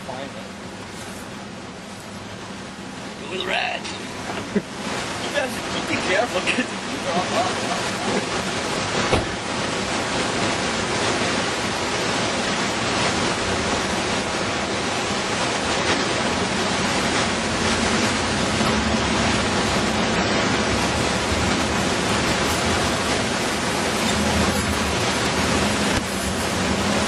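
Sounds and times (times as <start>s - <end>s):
truck driving on sandy trail: 15.7s - 27.0s.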